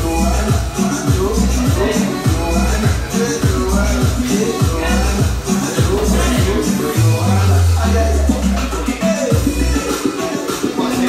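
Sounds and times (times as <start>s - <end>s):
kick drum: 0.0s - 6.6s, 9.3s - 9.6s
music with steady beat: 0.0s - 11.0s.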